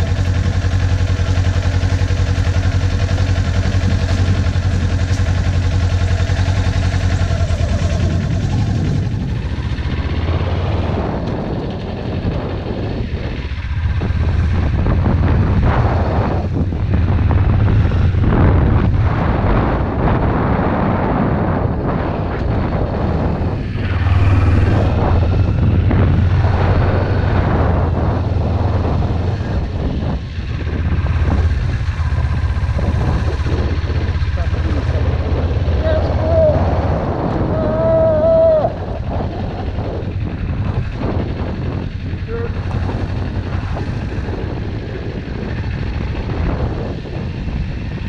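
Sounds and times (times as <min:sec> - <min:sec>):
motorcycle engine drone: 0:00.0 - 0:48.0
wind rushing over microphone: 0:00.0 - 0:48.0
high whine: 0:21.3 - 0:46.8.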